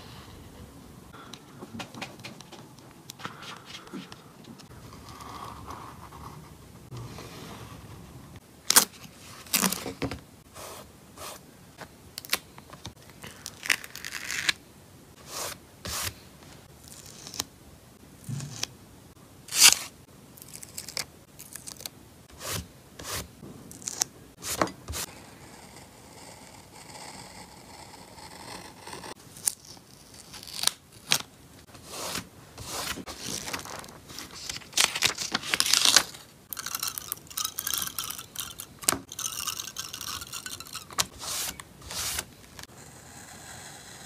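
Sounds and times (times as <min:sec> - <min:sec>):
paper crackling and tearing: 0:31.9 - 0:36.2.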